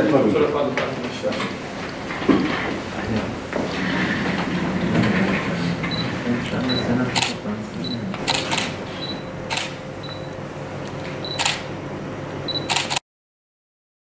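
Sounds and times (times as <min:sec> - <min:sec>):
camera shutters clicking: 0:07.2 - 0:07.4, 0:08.2 - 0:08.8, 0:09.5 - 0:09.8, 0:11.4 - 0:11.6, 0:12.6 - 0:13.0
short high beeps: 0:12.5 - 0:12.9.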